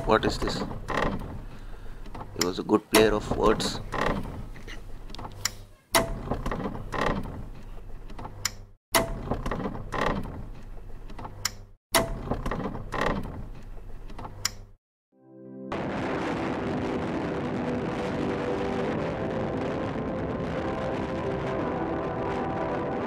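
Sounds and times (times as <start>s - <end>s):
mechanical clicking and creaking: 0.0s - 14.8s.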